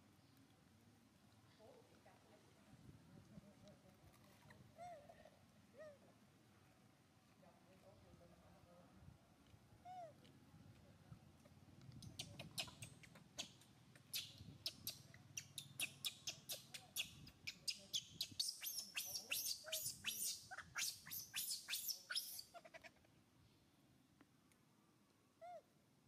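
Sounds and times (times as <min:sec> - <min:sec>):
baby monkey squealing: 0:12.3 - 0:22.8.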